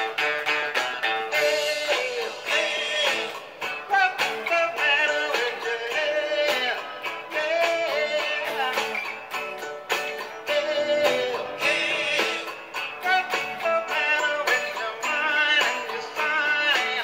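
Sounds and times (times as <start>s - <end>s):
electric guitar melody: 0.0s - 17.0s.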